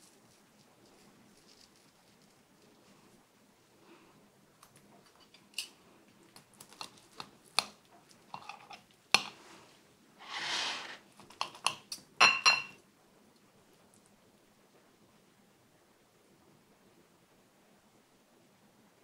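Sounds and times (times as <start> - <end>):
cutlery scraping: 8.3 - 9.3, 10.2 - 12.8
knife and fork clinking on bowl: 11.4 - 12.8.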